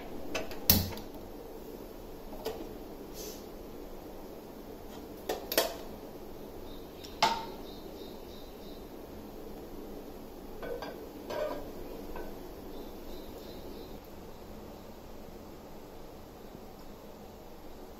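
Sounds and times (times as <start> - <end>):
steady background hiss: 0.0 - 17.9
frying pan clanking on stove: 10.6 - 12.4
metal cookware knock ringing: 10.6 - 12.4.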